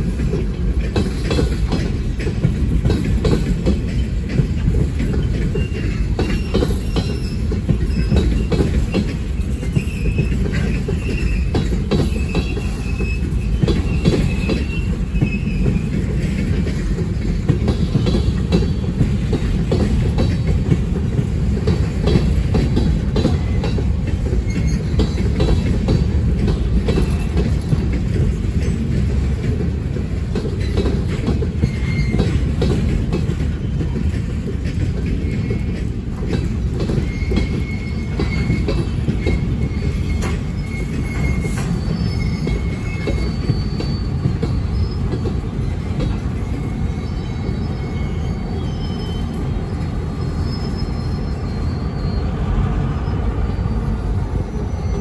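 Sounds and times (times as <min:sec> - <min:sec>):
wheels clicking and clattering: 0:00.0 - 0:47.7
freight train wheels rumbling: 0:00.0 - 0:55.0
high wheel squeal: 0:05.2 - 0:16.3, 0:24.4 - 0:25.3, 0:31.5 - 0:32.6, 0:36.9 - 0:55.0.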